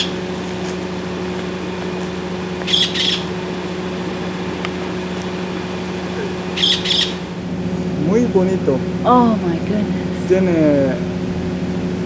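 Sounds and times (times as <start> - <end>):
steady low hum: 0.0 - 12.0
macaw squawking harshly: 2.6 - 3.4, 6.1 - 7.3.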